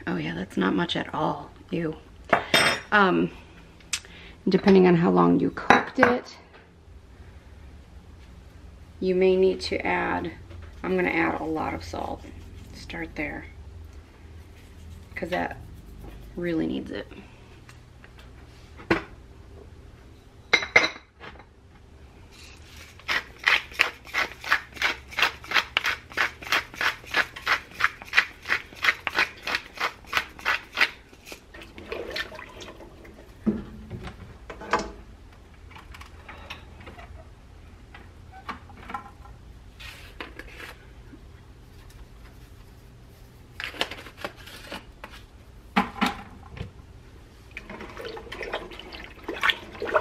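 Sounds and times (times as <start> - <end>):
pepper mill grinding: 22.4 - 31.4.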